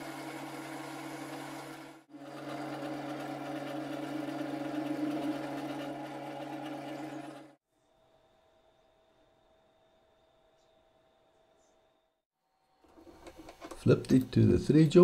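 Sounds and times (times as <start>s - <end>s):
lathe motor running: 0.0s - 7.6s.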